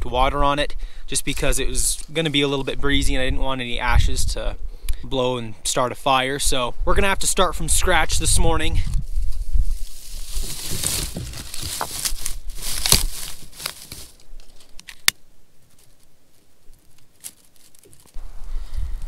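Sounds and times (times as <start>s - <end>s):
wind rumble on microphone: 2.6s - 4.7s, 6.4s - 12.8s, 18.2s - 19.0s
crinkling and tearing material: 9.7s - 15.1s, 15.7s - 18.2s.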